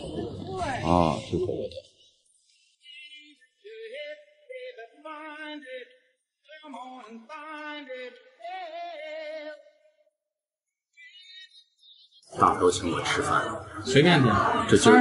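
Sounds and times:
music with person singing: 2.5 - 9.7.

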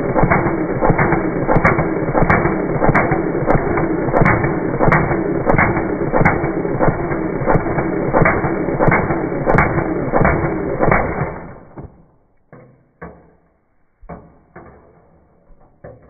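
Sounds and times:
airsoft rifle firing full auto: 0.0 - 12.2
separate knocks: 11.7 - 16.0.

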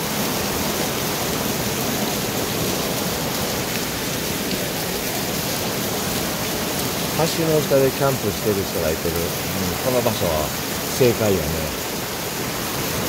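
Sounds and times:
heavy rain: 0.0 - 13.0
river rushing around pier: 0.0 - 13.0.

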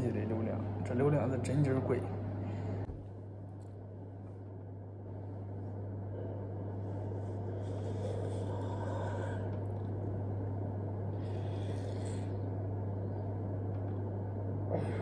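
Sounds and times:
low drone: 4.9 - 15.0.

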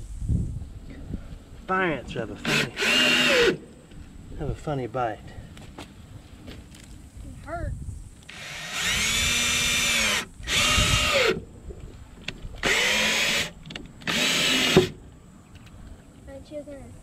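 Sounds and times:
cordless drill driving screws: 2.4 - 3.6, 8.3 - 11.4, 12.6 - 15.0.

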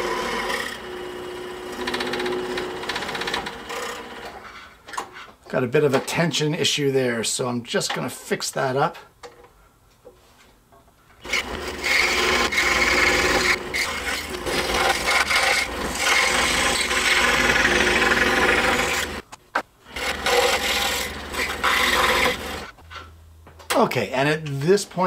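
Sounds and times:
scroll saw cutting wood: 0.0 - 4.6, 11.2 - 19.2, 19.9 - 22.8.

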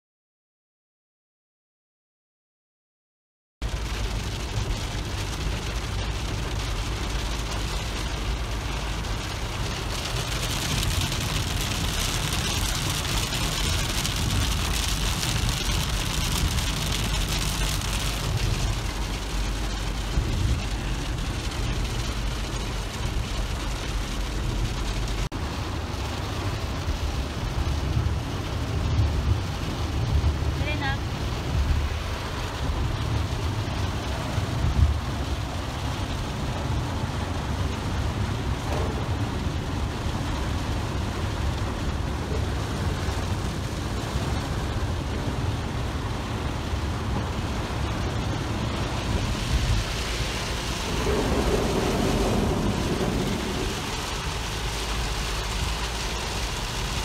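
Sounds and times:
heavy rain on car: 3.6 - 57.0
road and engine rumble: 3.6 - 57.0.

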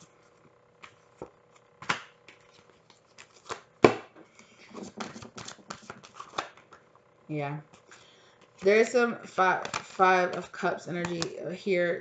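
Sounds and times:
cards snapping and slapping: 1.8 - 4.1, 4.9 - 6.8, 9.6 - 11.3
cards riffling: 4.3 - 6.8, 9.4 - 11.4.

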